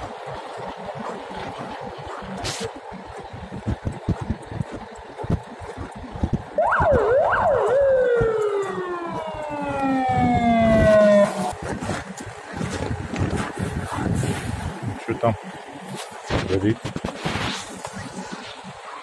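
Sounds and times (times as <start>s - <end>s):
fire engine siren: 6.6s - 12.7s
clicks and crackles: 16.0s - 18.7s.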